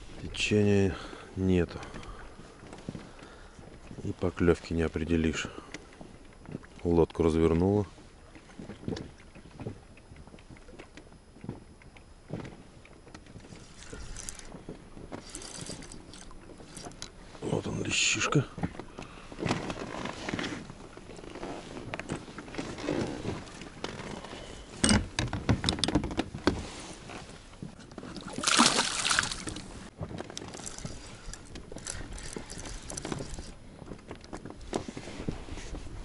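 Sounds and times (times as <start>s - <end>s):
knocks and clicks in boat: 1.7s - 17.2s, 17.9s - 28.4s, 29.3s - 36.0s
water splashing and sloshing: 12.3s - 17.5s, 18.4s - 35.8s.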